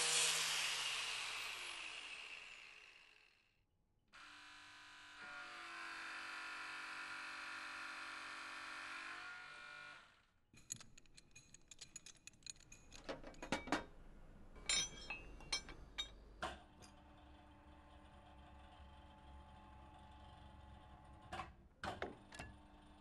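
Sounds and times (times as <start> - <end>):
metal parts clicking and clinking: 10.6 - 14.0, 14.6 - 16.2.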